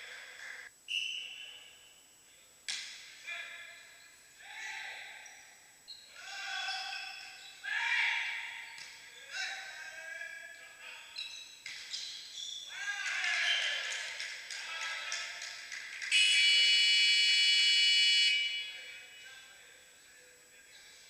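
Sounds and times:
loud buzzer tone: 0:16.1 - 0:18.8.

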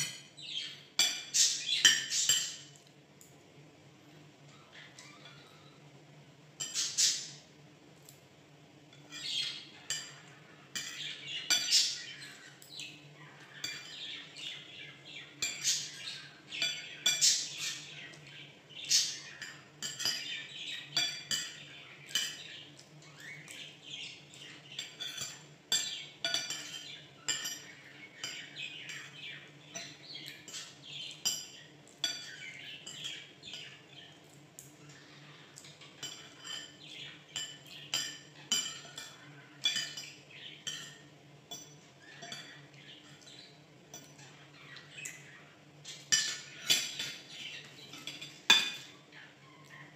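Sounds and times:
bird chirping: 0:00.0 - 0:02.7, 0:06.6 - 0:07.4, 0:09.1 - 0:34.2
cutlery clinking against plate: 0:00.0 - 0:03.4, 0:06.6 - 0:07.4, 0:08.9 - 0:49.0.

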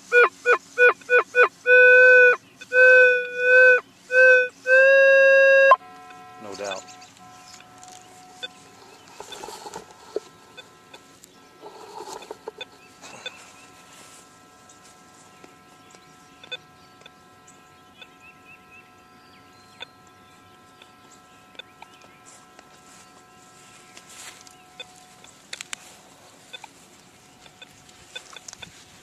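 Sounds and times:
metal detector tone: 0:00.1 - 0:11.1, 0:11.7 - 0:15.8, 0:20.7 - 0:25.3.

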